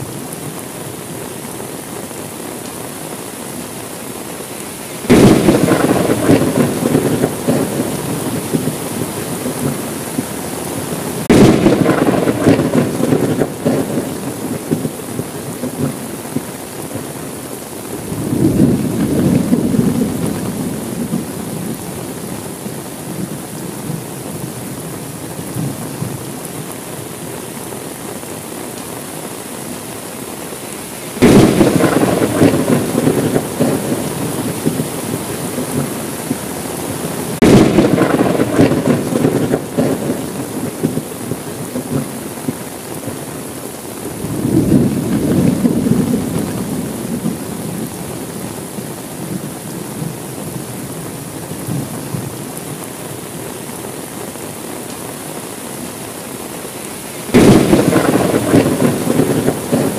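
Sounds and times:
steady rain: 0.0s - 59.9s
thunder cracking and rumbling: 5.1s - 10.3s, 11.2s - 17.1s, 18.0s - 21.8s, 31.2s - 36.4s, 37.3s - 42.6s, 44.2s - 48.0s, 57.3s - 59.9s.

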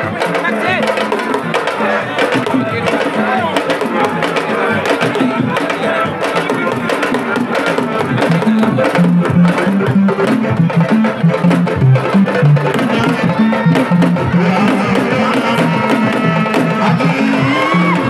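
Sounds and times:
fast dense drumming: 0.0s - 18.0s
low bass line: 8.3s - 15.4s.

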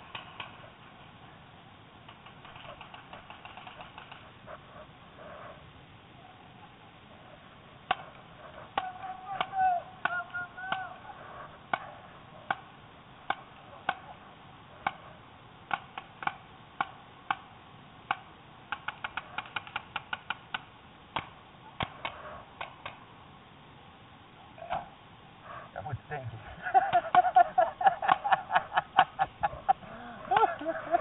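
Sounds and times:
paintball markers firing: 2.1s - 4.3s, 18.1s - 23.0s.

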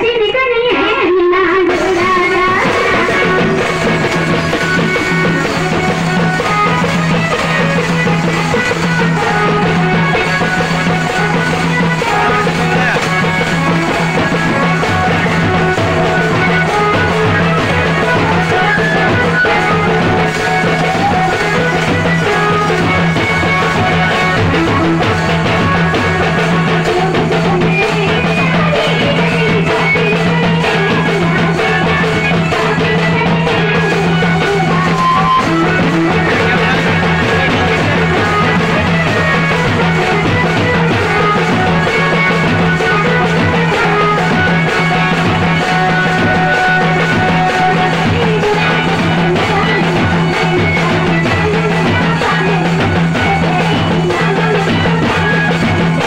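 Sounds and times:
loud live drumming: 0.0s - 56.0s.

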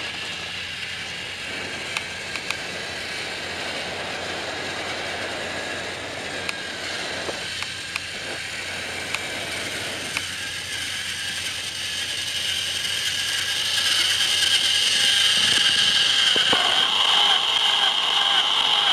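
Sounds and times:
high whine: 0.0s - 18.9s
toy train motor whirring: 0.0s - 18.9s
light clicks: 1.9s - 2.7s.

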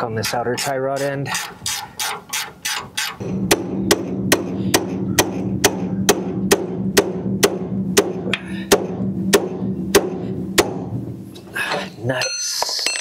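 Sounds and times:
steady low hum: 3.2s - 12.2s.

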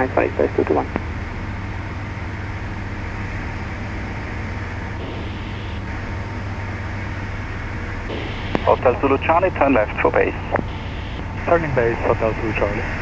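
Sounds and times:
light aircraft engine drone: 0.0s - 13.0s
airflow noise: 2.1s - 13.0s.

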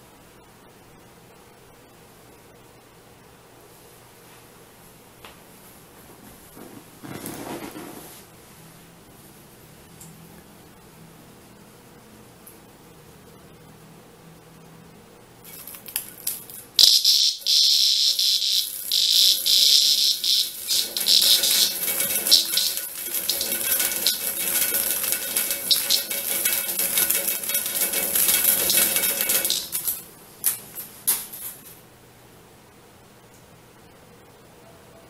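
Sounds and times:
cicada buzzing harshly: 16.8s - 24.7s, 25.3s - 30.0s.

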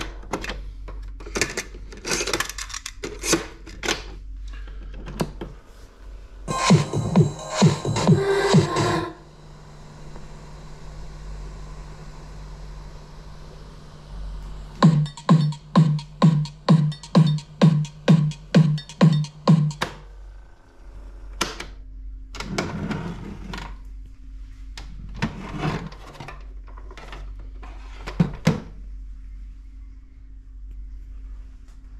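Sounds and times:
alarm clock buzzing beeps: 14.8s - 19.9s.

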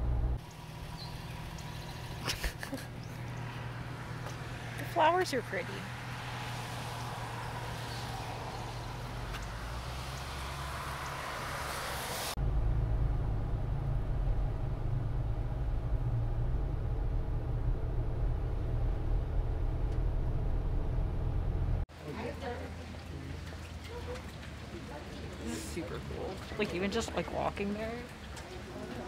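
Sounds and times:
car driving rumble: 0.0s - 21.9s.

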